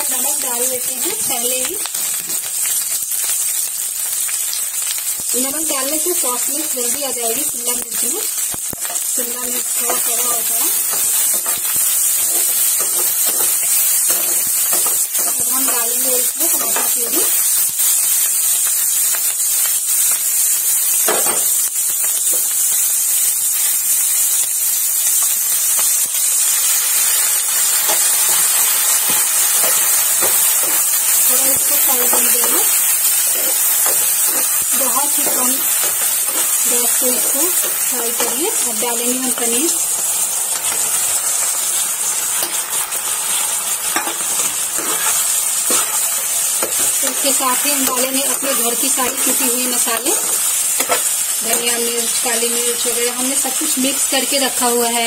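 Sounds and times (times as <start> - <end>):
vegetables sizzling in hot oil: 0.0 - 55.0
metal spatula scraping: 9.8 - 17.3, 29.1 - 39.6, 43.9 - 51.7.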